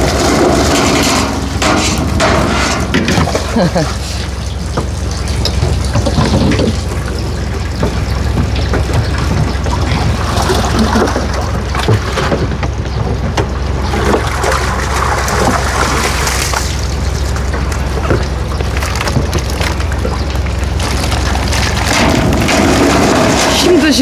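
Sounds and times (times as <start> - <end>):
low hum: 0.0 - 24.0
water sloshing and splashing: 0.0 - 24.0
sharp knocks: 0.9 - 3.4.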